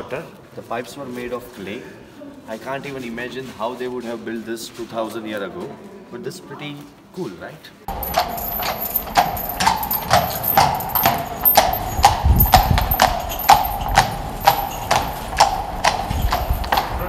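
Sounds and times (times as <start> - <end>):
hooves clip-clopping on stone: 7.9 - 17.0.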